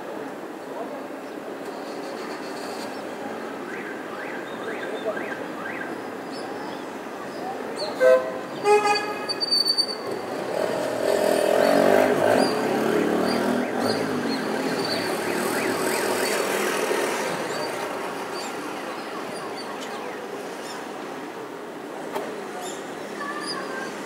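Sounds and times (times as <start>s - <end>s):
motor vehicle passing: 10.1s - 18.6s.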